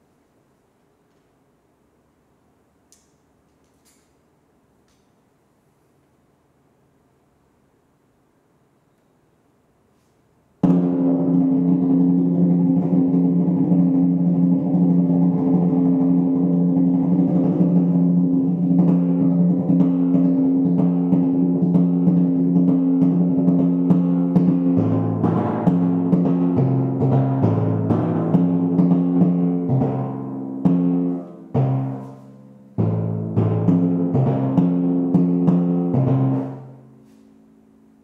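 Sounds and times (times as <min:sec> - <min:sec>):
timpani roll: 0:10.6 - 0:37.0
lower-pitched drum: 0:10.6 - 0:37.2.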